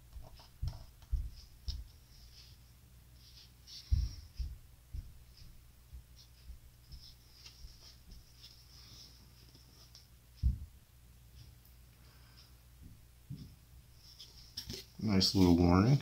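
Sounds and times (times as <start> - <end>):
low thumps: 3.9 - 6.7, 10.4 - 10.8.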